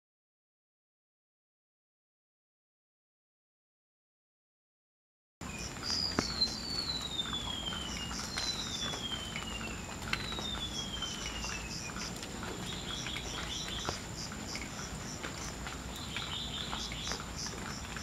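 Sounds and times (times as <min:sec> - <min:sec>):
bird twittering: 0:05.6 - 0:17.6.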